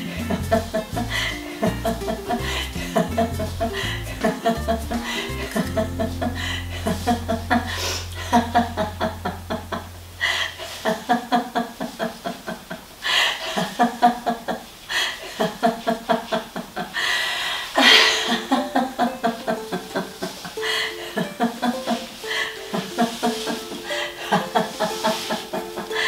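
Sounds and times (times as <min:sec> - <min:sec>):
low steady hum: 0:00.0 - 0:14.1
people laughing: 0:00.2 - 0:09.8, 0:17.8 - 0:26.0.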